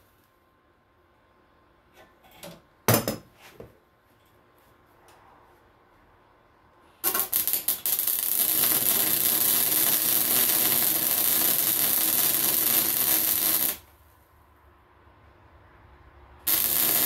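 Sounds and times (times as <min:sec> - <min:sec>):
welding arc crackling: 0:07.0 - 0:13.9, 0:16.4 - 0:17.0.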